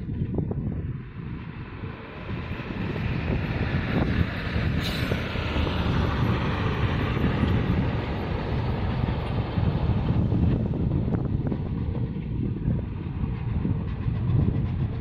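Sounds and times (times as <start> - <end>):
wind buffeting microphone: 0.0 - 15.0
truck driving past: 1.0 - 10.8.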